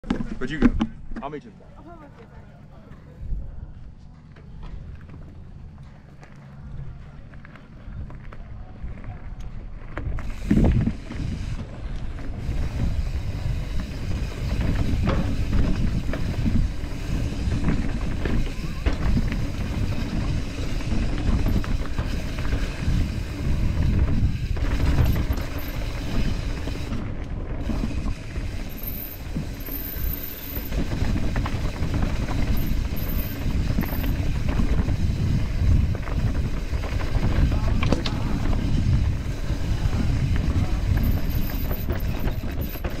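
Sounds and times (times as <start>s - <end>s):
wind rumble on microphone: 3.1s - 43.0s
bike rattling over rocks: 9.6s - 43.0s.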